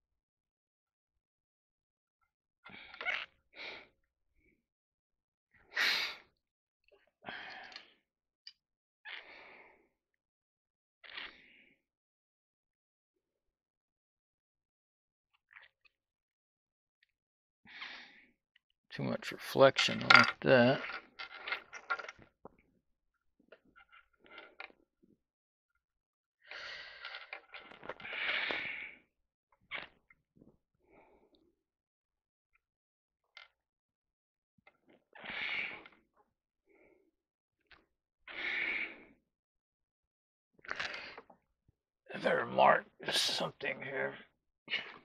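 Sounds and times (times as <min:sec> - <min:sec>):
man breathing heavily: 0:28.0 - 0:29.0.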